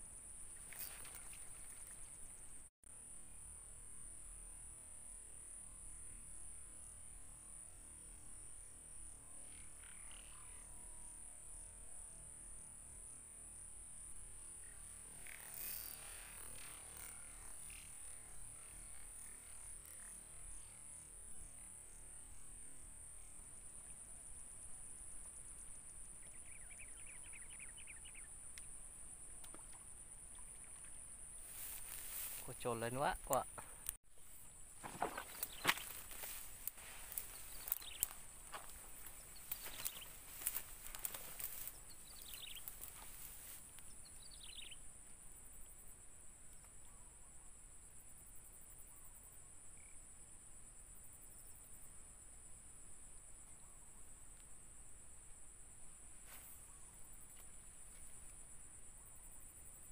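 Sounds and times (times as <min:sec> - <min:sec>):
insect drone: 0:00.0 - 0:59.9
bird chirps: 0:37.1 - 0:38.2, 0:39.2 - 0:40.2, 0:41.6 - 0:43.2, 0:44.0 - 0:44.8.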